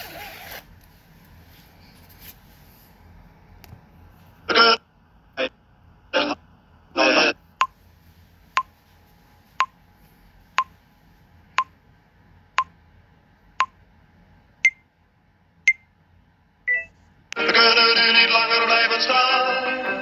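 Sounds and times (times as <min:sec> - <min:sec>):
phone countdown beeps: 0:14.6 - 0:14.8, 0:16.7 - 0:16.9.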